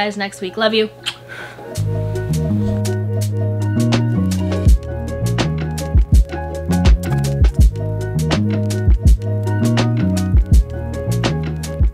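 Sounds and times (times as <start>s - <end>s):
background music with steady beat: 0.0s - 11.9s
hi-hat strokes: 1.6s - 11.9s
bass line: 1.8s - 11.9s.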